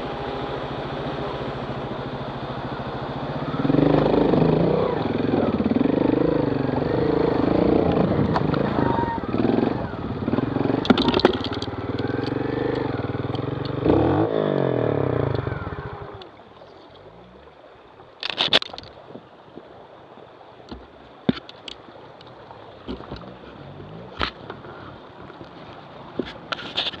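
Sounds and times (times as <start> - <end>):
motorcycle engine revving: 0.0 - 16.2, 22.9 - 24.9
water running over rocks: 0.0 - 27.0
sharp knocks and clatters: 10.8 - 11.7.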